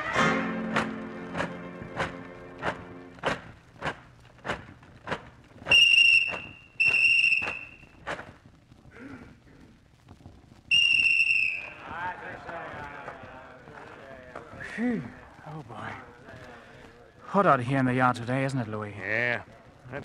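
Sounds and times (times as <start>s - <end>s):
slow footsteps: 0.0s - 17.4s
whistle blasts: 5.6s - 8.0s, 10.7s - 12.0s.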